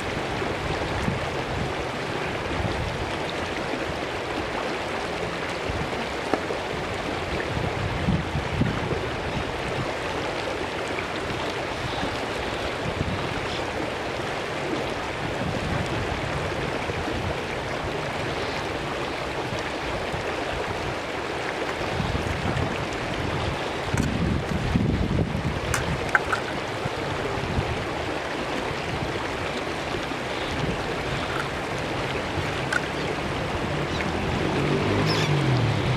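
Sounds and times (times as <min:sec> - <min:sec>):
stream rushing over rocks: 0:00.0 - 0:35.9.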